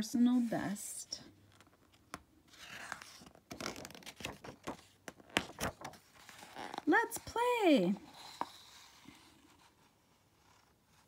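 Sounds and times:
paper pages rustling: 1.4 - 7.3.

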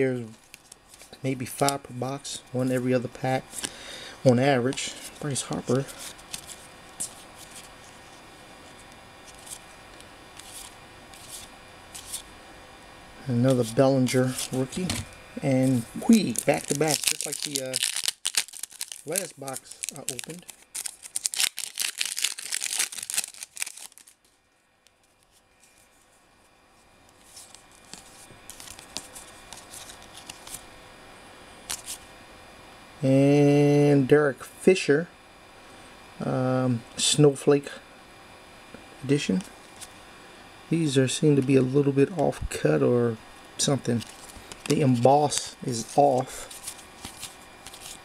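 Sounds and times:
cards rubbing and rustling: 0.3 - 1.8, 4.4 - 12.3, 13.4 - 24.4, 27.1 - 30.7, 31.6 - 32.0, 43.6 - 48.0
foil wrapper tearing: 15.7 - 24.2, 27.2 - 30.6, 44.0 - 48.0.

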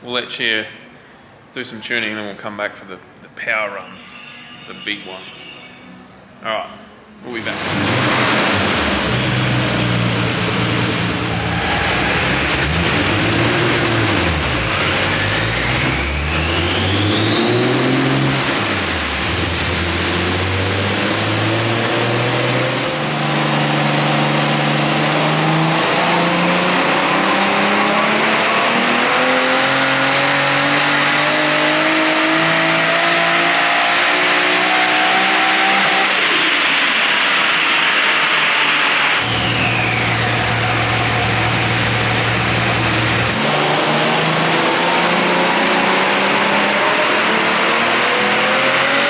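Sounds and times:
car engine running under load: 7.5 - 49.0
turbo whistle: 37.1 - 42.3.

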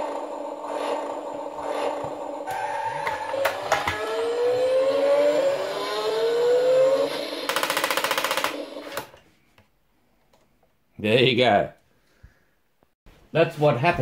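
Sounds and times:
rising motor whine: 0.0 - 7.7
toy motor whirring: 0.0 - 9.1.

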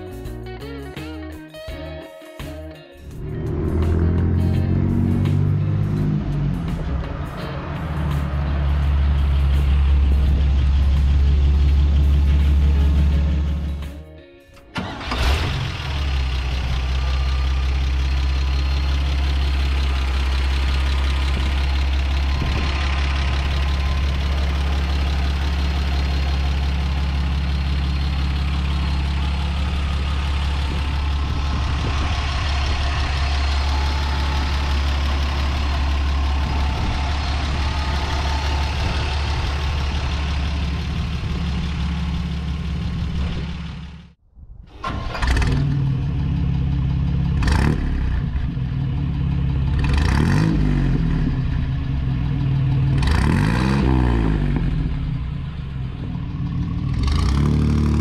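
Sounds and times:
pickup truck engine idling: 3.1 - 13.9, 14.8 - 44.2, 45.7 - 49.8, 51.2 - 53.0.

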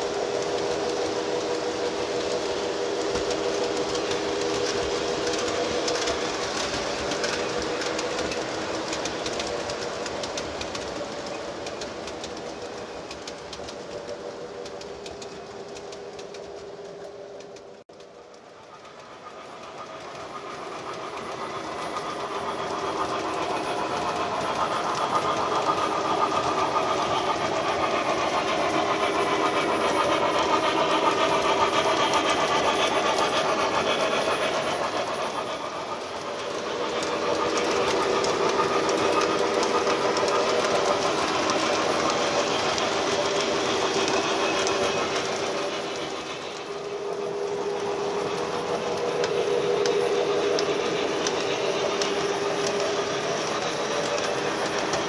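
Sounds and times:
model train wheels clattering: 0.0 - 55.0.

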